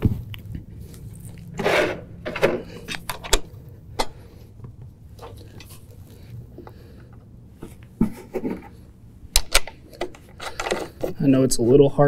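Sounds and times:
metal hardware clicking: 9.3s - 10.9s.

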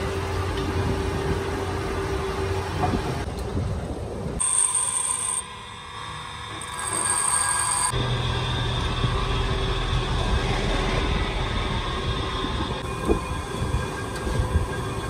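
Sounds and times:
high machine whine: 4.4s - 15.0s.

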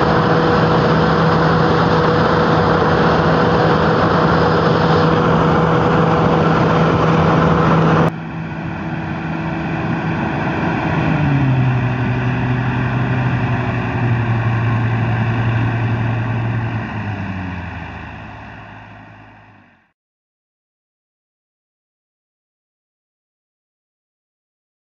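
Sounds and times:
sweeper engine hum: 0.0s - 19.9s.

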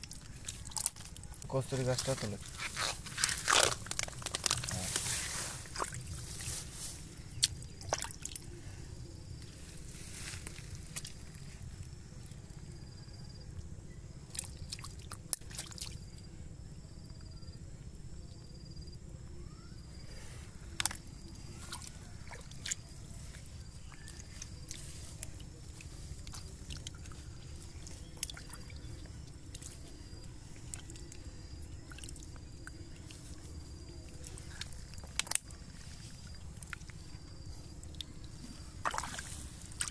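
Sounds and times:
hands splashing in muddy water: 0.0s - 8.5s, 38.8s - 39.9s
water dripping: 7.4s - 8.5s, 23.6s - 39.9s
faint high chirp: 19.3s - 22.2s.

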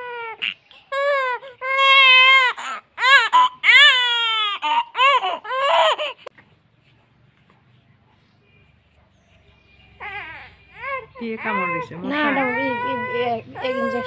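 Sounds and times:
baby crying: 0.0s - 6.3s, 10.0s - 14.0s.

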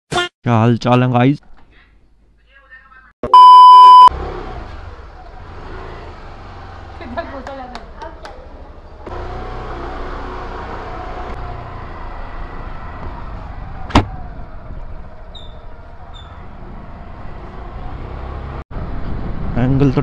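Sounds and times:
scooter engine rumble: 4.3s - 17.8s.

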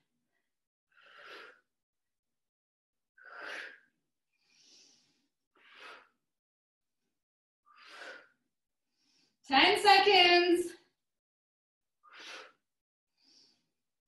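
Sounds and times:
faint breath: 0.9s - 1.7s, 3.2s - 6.3s, 7.7s - 9.5s, 12.0s - 13.8s.

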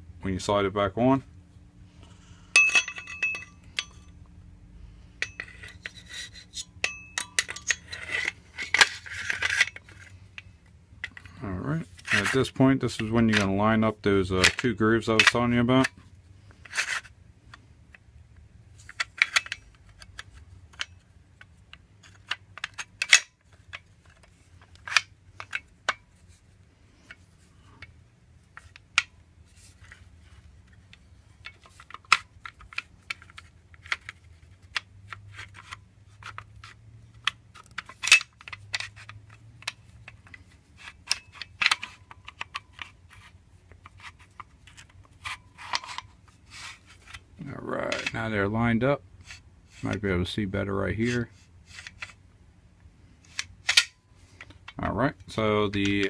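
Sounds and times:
metal rifle parts clicking: 2.5s - 4.2s, 5.2s - 11.4s, 18.8s - 26.1s, 28.5s - 47.2s, 47.8s - 48.3s, 53.3s - 56.0s.

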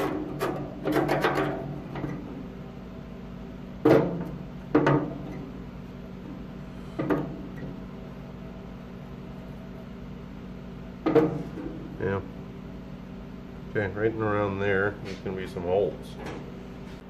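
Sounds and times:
faint steady hum: 0.0s - 17.0s
knocks on metal: 3.8s - 5.2s, 11.0s - 11.5s.

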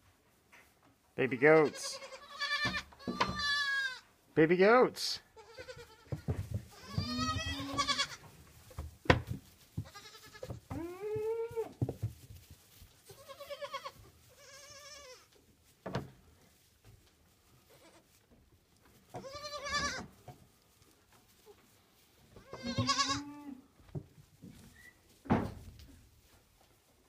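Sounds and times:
goat kids bleating: 1.2s - 4.2s, 5.2s - 8.4s, 9.8s - 11.8s, 13.0s - 15.4s, 17.5s - 18.2s, 19.0s - 20.2s, 22.3s - 23.7s.

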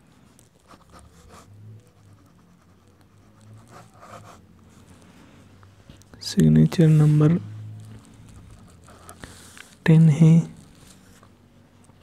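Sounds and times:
pen scratching on paper: 0.4s - 5.0s, 8.1s - 9.8s.

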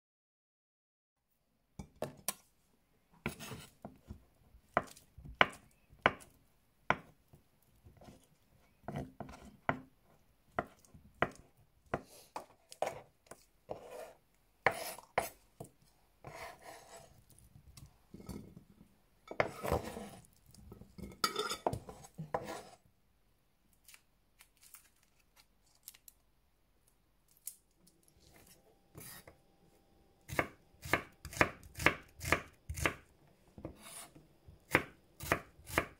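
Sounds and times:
knife chopping on wooden board: 3.2s - 4.1s, 13.7s - 15.3s, 30.3s - 33.0s, 34.7s - 35.9s.

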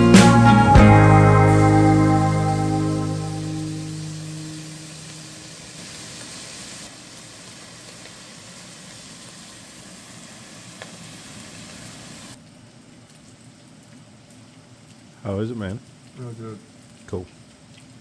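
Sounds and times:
meat sizzling in a pan: 1.5s - 12.4s.

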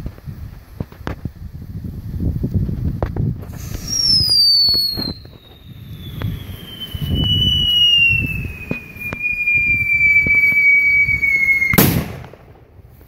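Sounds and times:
crackling pops: 2.5s - 13.0s
rocket shrill whistle: 3.5s - 12.1s
loud burst: 3.5s - 12.3s.

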